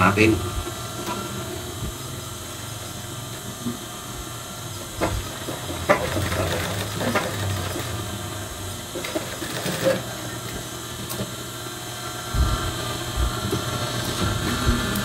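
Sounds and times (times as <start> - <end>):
sewing machine motor humming: 4.8 - 11.3.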